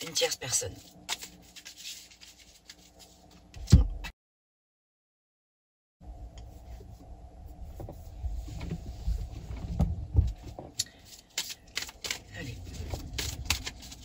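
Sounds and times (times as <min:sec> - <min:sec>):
low rumbling thuds: 0:07.7 - 0:10.7.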